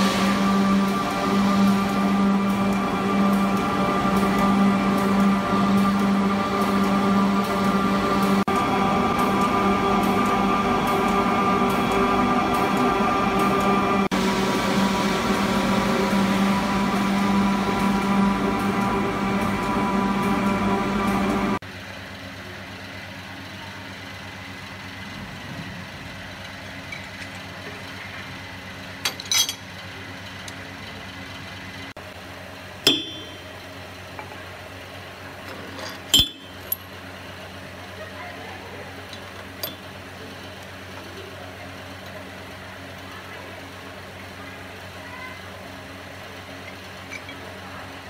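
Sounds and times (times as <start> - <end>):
steady machine hum: 0.0 - 29.2, 30.0 - 35.4
metal tooling clinking: 29.0 - 29.7, 35.8 - 36.9.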